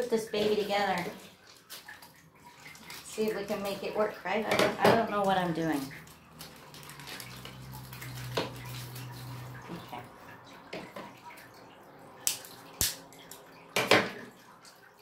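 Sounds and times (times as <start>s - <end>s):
plastic bag crinkling: 5.5s - 9.6s.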